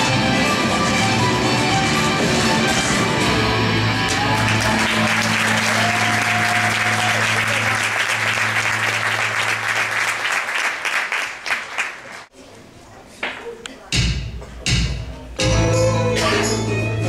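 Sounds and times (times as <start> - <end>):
audience applauding: 3.9 - 12.3.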